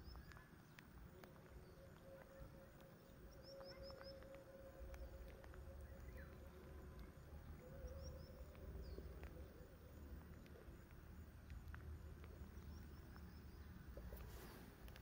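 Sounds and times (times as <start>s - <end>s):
faint low rumble: 0.0s - 15.0s.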